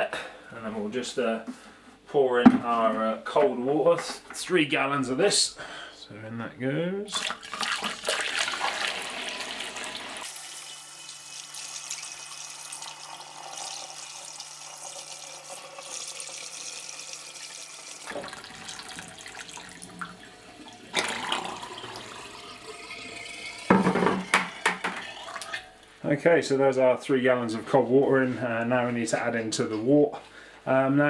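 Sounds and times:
water pouring through a funnel: 7.1 - 25.6
funnel draining: 7.1 - 25.7.

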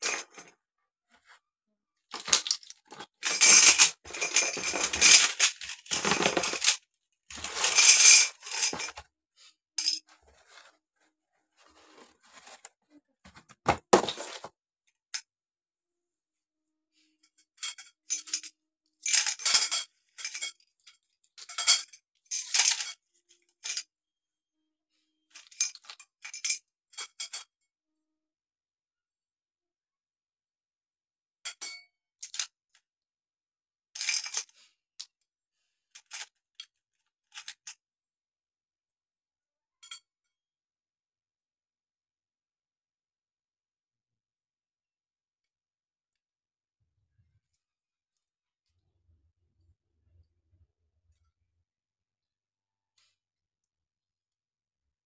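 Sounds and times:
metal tubes clinking and rattling: 0.0 - 0.5, 2.1 - 9.0, 9.8 - 10.2, 17.6 - 23.0, 25.4 - 27.5, 34.0 - 34.7.

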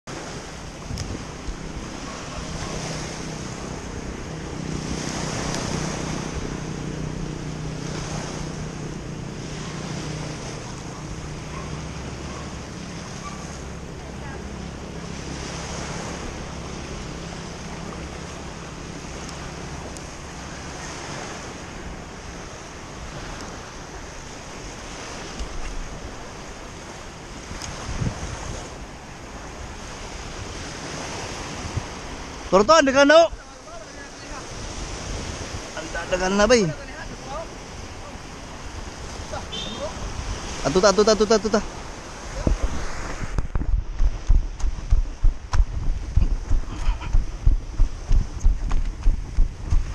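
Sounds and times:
wind buffeting microphone: 0.1 - 32.5, 33.2 - 40.7, 41.6 - 49.9.

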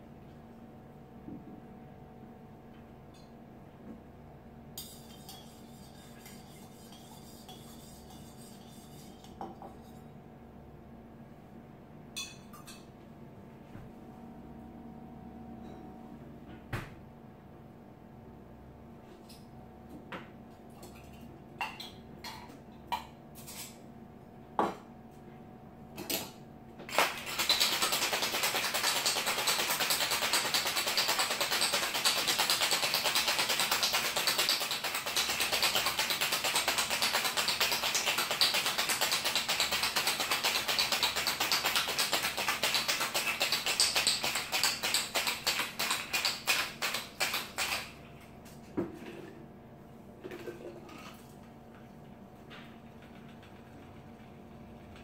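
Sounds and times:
ice rattling in metal shaker: 26.9 - 47.9.

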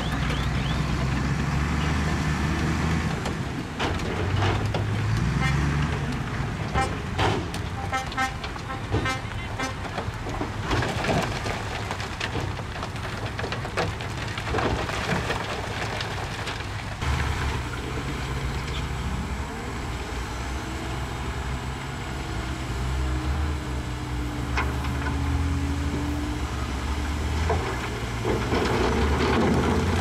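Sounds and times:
rocks clattering and sliding: 6.0 - 17.7, 27.2 - 30.0.

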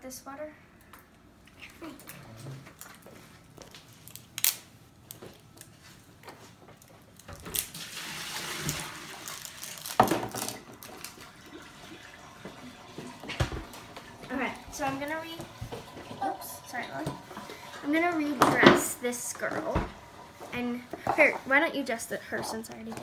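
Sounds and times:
water pouring from a container: 7.5 - 14.3.

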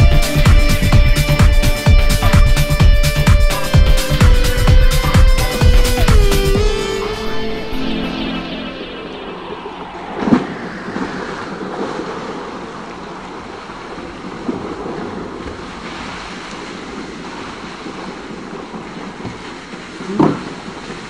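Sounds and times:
wind buffeting microphone: 0.0 - 21.0
sharp knock: 2.1 - 2.7
pool water lapping and splashing: 10.2 - 21.0.

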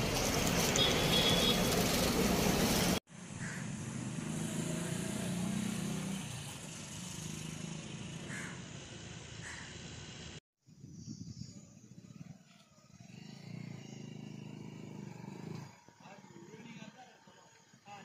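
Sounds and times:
road traffic noise: 0.0 - 10.4, 12.0 - 18.0
vehicle engine passing: 3.6 - 9.3, 12.9 - 17.0.

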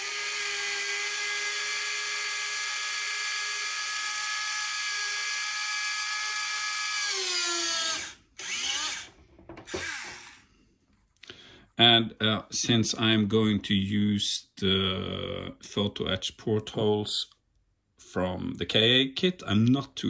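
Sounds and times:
small drill motor whining: 0.0 - 10.4.

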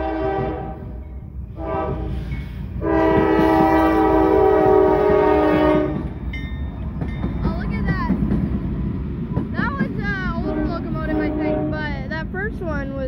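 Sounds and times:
locomotive air horn blasts: 0.0 - 6.2, 10.4 - 12.1
low rumble of passing locomotives: 0.0 - 13.0.

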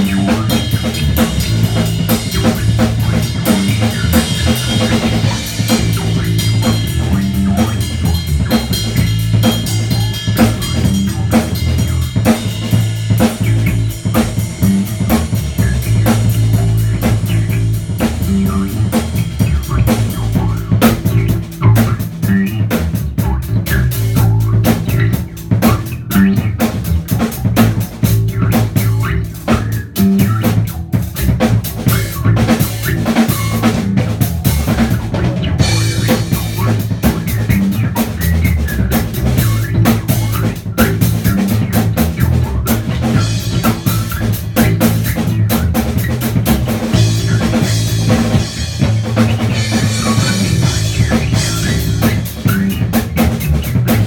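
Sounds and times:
bass guitar groove: 0.0 - 54.0
drum kit playing: 0.0 - 54.0.

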